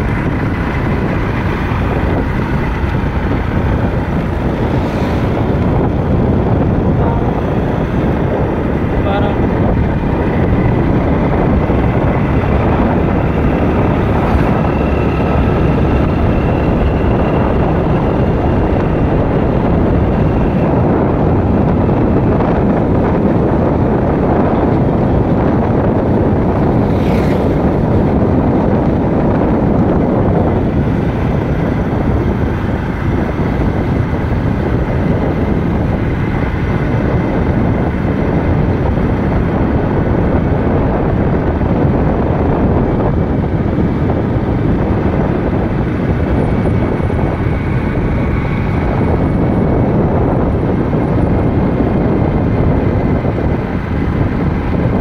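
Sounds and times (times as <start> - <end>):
vehicle road noise: 0.0 - 55.0
wind buffeting microphone: 0.0 - 55.0.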